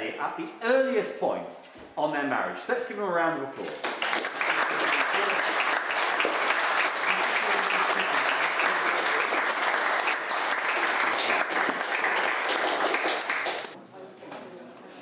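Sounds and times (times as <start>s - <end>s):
crowd clapping: 3.6s - 13.8s.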